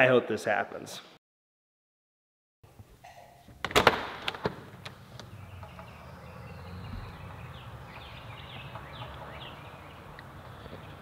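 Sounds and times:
songbirds chirping: 4.8 - 11.0
low outdoor rumble: 5.0 - 11.0.

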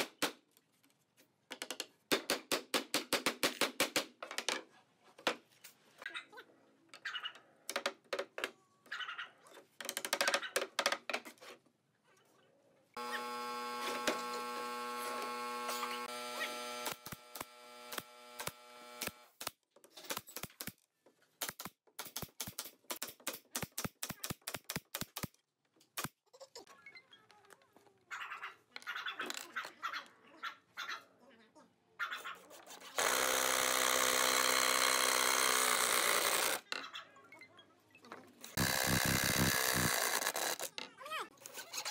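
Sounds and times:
cordless drill driving screw: 13.0 - 19.4, 33.0 - 36.6, 38.6 - 40.7
machine running: 13.0 - 19.4, 38.6 - 40.3
nail gun firing: 16.7 - 19.5, 33.0 - 36.6, 38.6 - 40.6.

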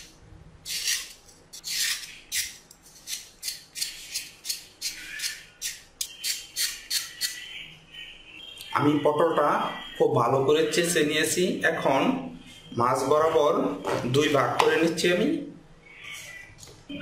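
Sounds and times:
knife scraping gourd skin: 0.6 - 7.4.

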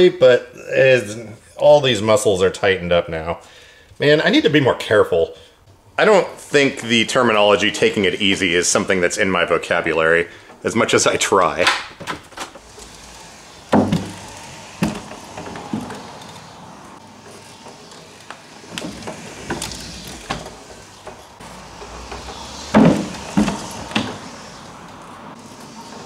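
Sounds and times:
power wheelchair electric drive: 11.4 - 26.0
wheels knocking on plywood: 12.4 - 25.0.

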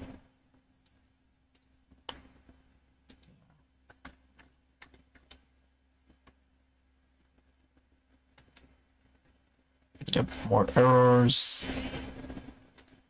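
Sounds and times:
faint electrical hum: 0.0 - 13.0
computer keys clicking: 0.8 - 5.5, 8.3 - 9.3, 12.7 - 13.0.

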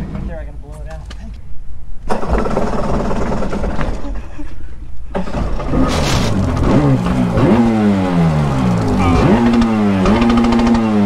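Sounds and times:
two-stroke engine revving blips: 6.4 - 11.0.

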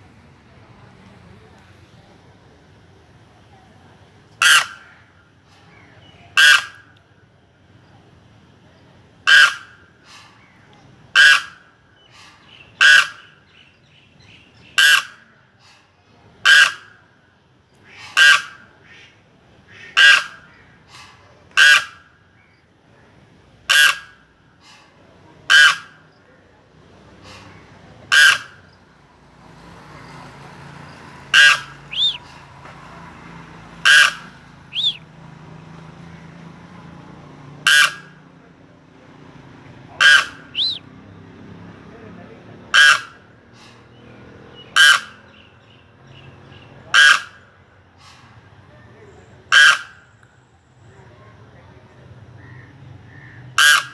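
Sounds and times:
crane calling: 4.3 - 7.1, 9.2 - 15.3, 16.4 - 17.1, 17.8 - 22.6, 23.7 - 38.4, 39.5 - 41.0, 42.7 - 43.7, 44.6 - 47.9, 49.2 - 50.3, 52.3 - 53.9
faint high whistles: 31.9 - 32.2, 34.7 - 35.0, 40.5 - 40.9.

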